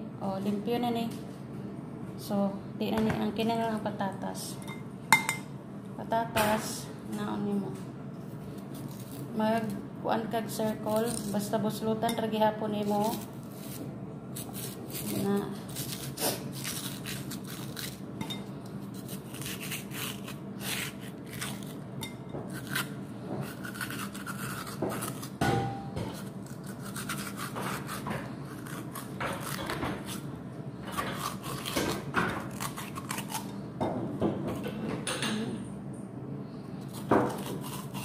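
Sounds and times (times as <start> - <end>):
corer rasping inside potato: 13.1 - 18.0, 18.8 - 21.8, 22.5 - 25.4, 26.2 - 30.3, 36.9 - 38.0.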